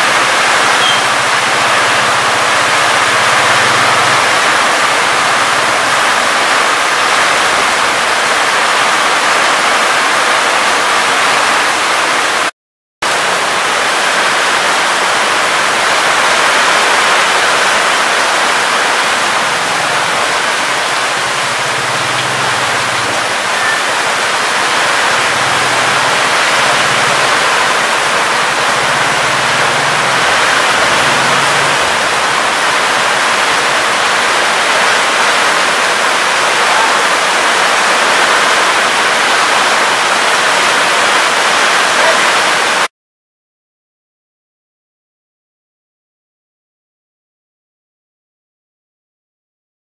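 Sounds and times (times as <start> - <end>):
runoff pouring off roof: 0.0 - 10.2, 13.2 - 42.9
heavy rain downpour: 0.0 - 42.9.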